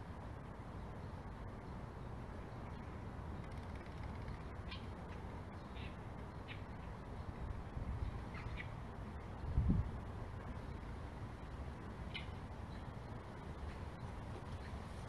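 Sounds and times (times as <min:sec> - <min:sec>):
wind rumble: 0:05.4 - 0:15.0.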